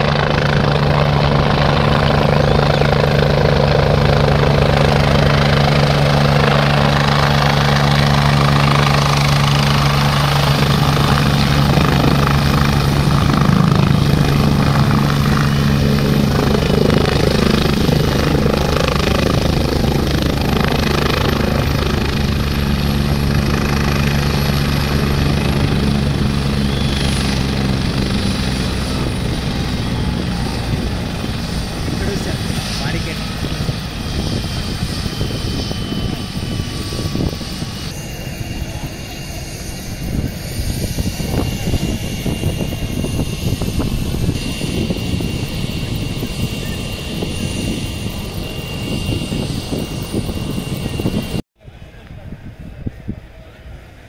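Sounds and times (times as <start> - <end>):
helicopter rotor and engines: 0.0 - 54.0
high turbine whine: 0.0 - 54.0.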